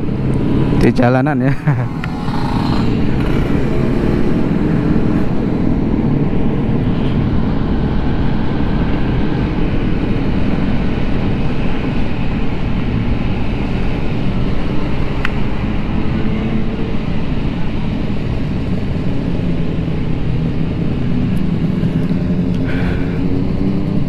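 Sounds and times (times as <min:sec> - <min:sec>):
wind and road noise: 0:00.0 - 0:24.0
scooter engine running: 0:01.8 - 0:05.8.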